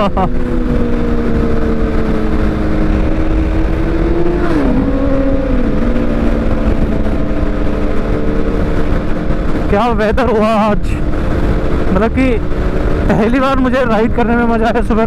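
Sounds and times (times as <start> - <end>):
motorcycle engines running: 0.0 - 15.0
wind on microphone: 0.0 - 15.0.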